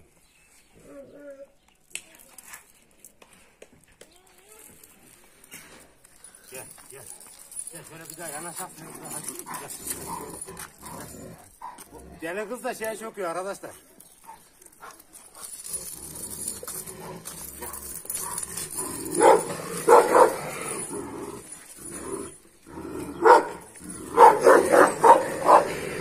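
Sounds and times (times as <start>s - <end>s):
dogs barking: 9.1s - 11.9s, 17.4s - 20.9s, 23.0s - 26.0s.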